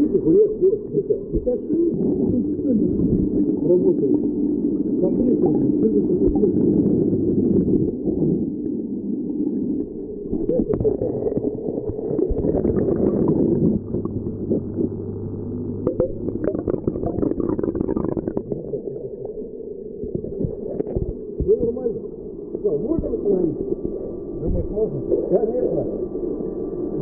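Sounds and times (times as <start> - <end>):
low hum: 0.0 - 27.0
aquarium pump gurgling water: 10.4 - 19.3.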